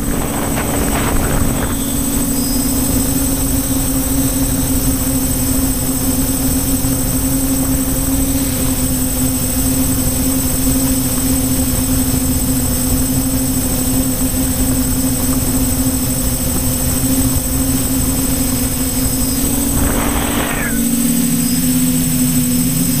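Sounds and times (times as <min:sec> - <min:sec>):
drone propellers humming: 0:00.0 - 0:23.0
wind rumble on microphone: 0:00.0 - 0:23.0
brief rush of noise: 0:19.2 - 0:21.1.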